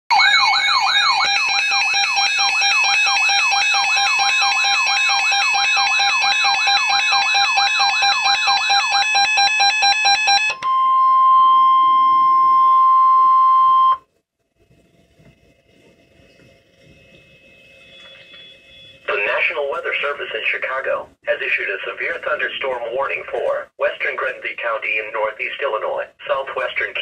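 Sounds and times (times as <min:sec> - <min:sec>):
steady alarm tone: 0:00.1 - 0:14.0, 0:16.6 - 0:19.5
warbling alarm siren: 0:00.1 - 0:14.0, 0:16.8 - 0:19.1.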